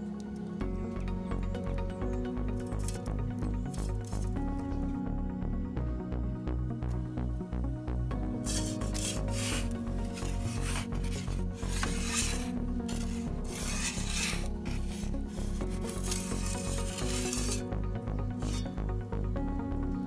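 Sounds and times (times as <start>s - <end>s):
background music: 0.0s - 20.0s
metal peel scraping on stone: 3.7s - 4.3s, 8.4s - 17.7s, 18.4s - 18.8s.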